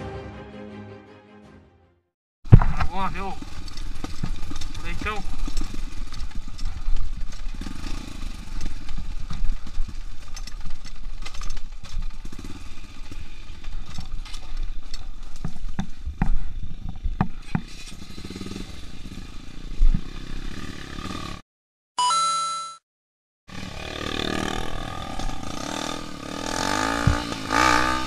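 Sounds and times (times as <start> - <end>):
bike knocks and rattles: 2.5 - 18.3, 26.6 - 27.8
dirt bike engine: 2.5 - 21.4, 23.5 - 28.0.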